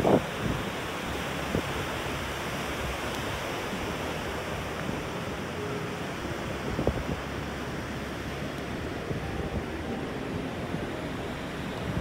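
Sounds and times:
ocean surf washing onto beach: 0.0 - 12.0
wind blowing across microphone: 0.0 - 12.0.

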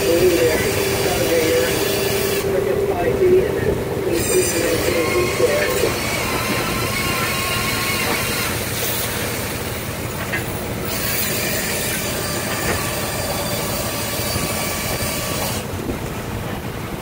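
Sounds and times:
high-pitched winch tones: 0.0 - 9.1
boat deck machinery and engine: 0.0 - 17.0.

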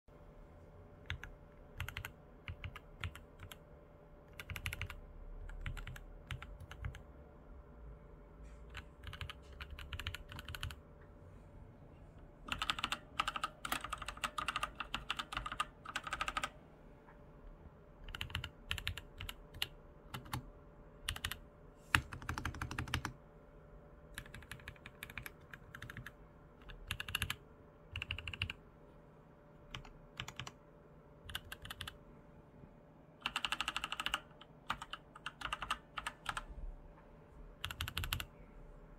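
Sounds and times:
typing on mechanical keyboard: 1.0 - 3.6, 4.3 - 7.1, 8.7 - 10.8, 12.4 - 16.6, 18.0 - 23.2, 24.1 - 28.6, 29.7 - 30.6, 31.2 - 32.0, 33.2 - 36.5, 37.6 - 38.3.

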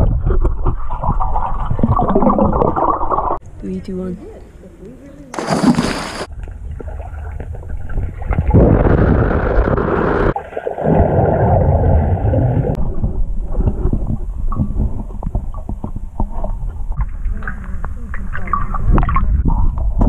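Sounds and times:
bubbly clicks and gurgles: 0.0 - 3.4, 5.4 - 20.0
underwater churning water rush: 8.4 - 13.1.

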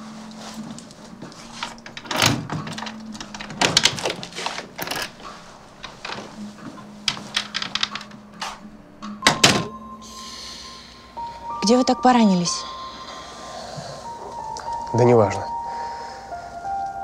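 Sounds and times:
sharp clicks and crinkly rustles: 0.3 - 8.6.

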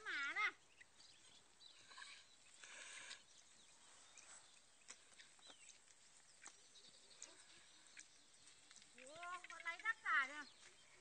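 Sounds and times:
faint chirps and ticks: 0.0 - 11.0.

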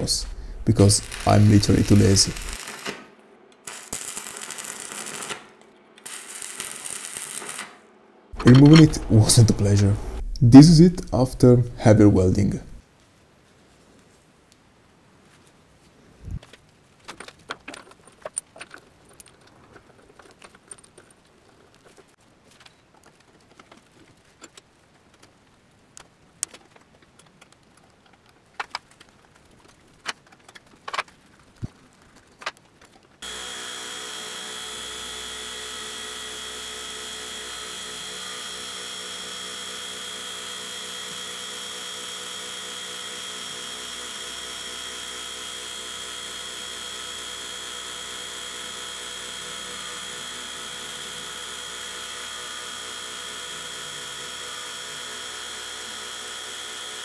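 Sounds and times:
milling machine cutting metal: 0.0 - 2.7, 8.4 - 10.4, 33.2 - 57.0.

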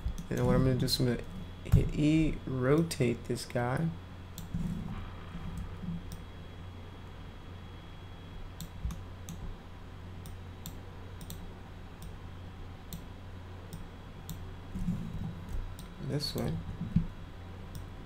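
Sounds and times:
steady low hum: 0.0 - 18.0
computer mouse clicks: 8.6 - 9.5, 10.2 - 11.4, 13.7 - 14.4.

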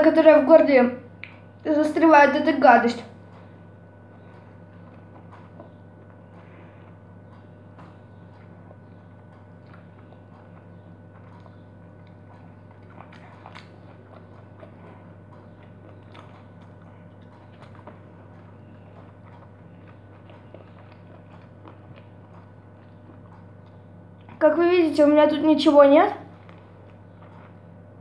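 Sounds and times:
steady low hum: 0.0 - 28.0
person chewing wet mouth clicks: 3.2 - 24.4.

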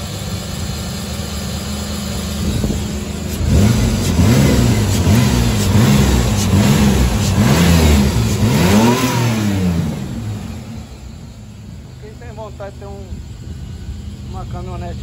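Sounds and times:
engine revving: 0.0 - 15.0.

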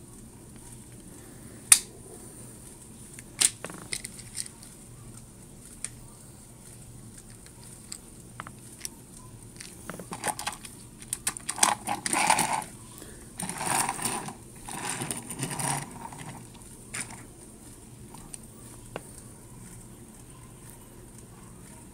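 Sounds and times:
toy train parts clicking: 1.7 - 1.9, 3.1 - 6.0, 7.1 - 12.7, 13.4 - 17.3
toy train rolling on wood: 3.2 - 4.7, 6.6 - 17.3.

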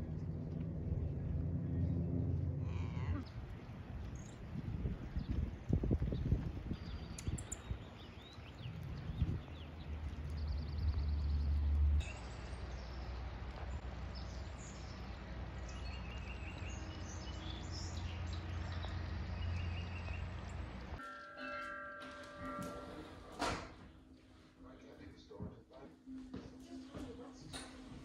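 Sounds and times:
wind buffeting microphone: 3.2 - 11.5.

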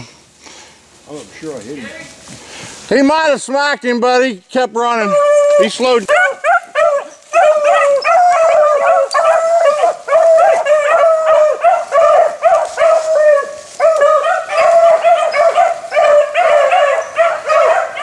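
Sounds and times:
dogs baying: 5.0 - 18.0.

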